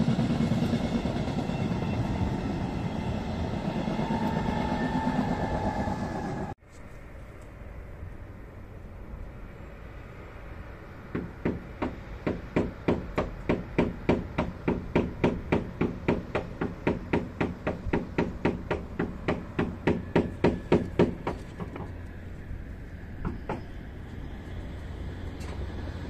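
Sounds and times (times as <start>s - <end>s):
fast hammer-like knocking: 11.1s - 21.9s.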